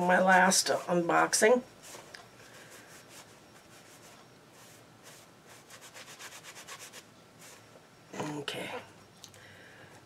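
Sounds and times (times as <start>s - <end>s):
hand rubbing strokes: 1.8s - 7.8s.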